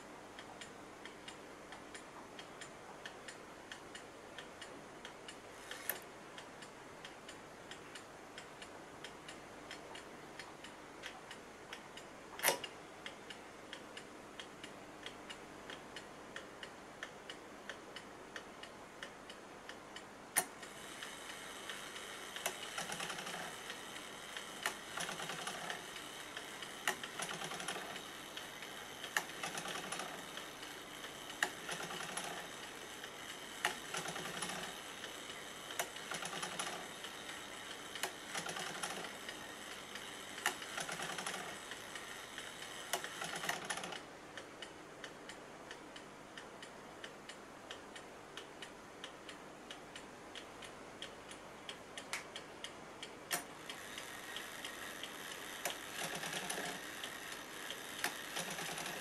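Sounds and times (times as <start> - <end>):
clock ticking: 0.4 - 59.0
clock mechanism click: 0.6 - 13.8, 20.3 - 45.8, 53.0 - 59.0.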